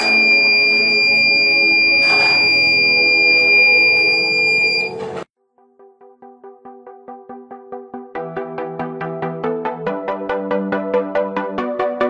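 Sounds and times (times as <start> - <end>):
high-pitched buzzer tone: 0.0 - 5.2.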